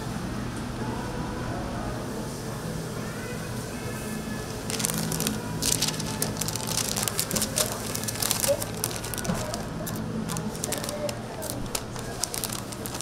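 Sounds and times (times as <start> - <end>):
wrapping paper crinkling: 4.6 - 13.0.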